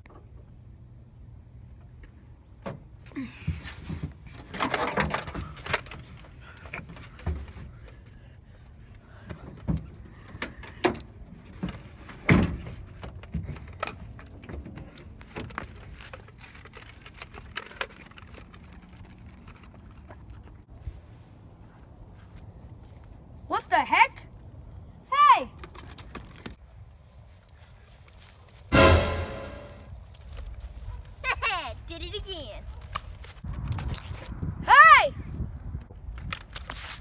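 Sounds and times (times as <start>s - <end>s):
knocks and clatters in truck bed: 3.5s - 6.0s.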